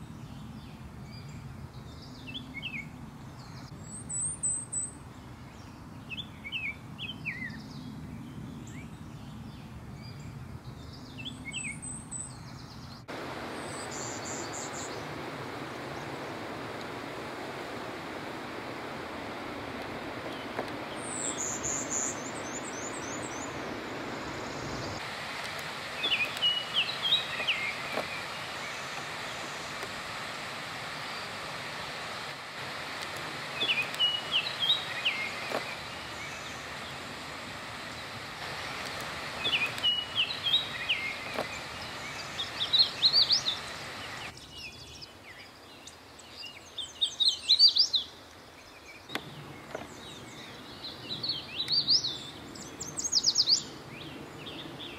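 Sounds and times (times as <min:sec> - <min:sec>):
background hiss: 0:00.0 - 0:54.9
bird's high quick song: 0:00.1 - 0:16.5, 0:17.7 - 0:25.0, 0:25.9 - 0:29.9, 0:33.5 - 0:37.2, 0:37.8 - 0:54.9
high bird chatter: 0:17.7 - 0:25.0, 0:25.9 - 0:30.0, 0:33.5 - 0:45.0.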